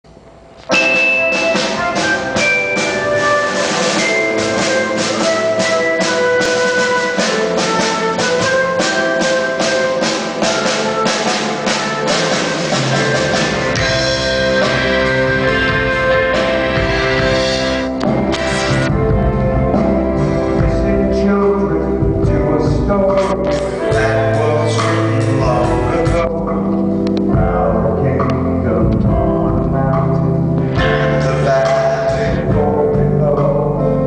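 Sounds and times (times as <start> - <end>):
bass and band accompaniment: 0.0 - 34.0
drum beat: 0.7 - 21.2
flute melody: 0.7 - 29.7.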